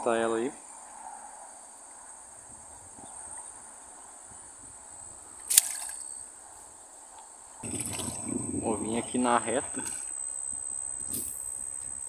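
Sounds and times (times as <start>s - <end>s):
crickets trilling: 0.0s - 12.0s
fish splashing into water: 5.5s - 6.0s, 7.6s - 8.5s.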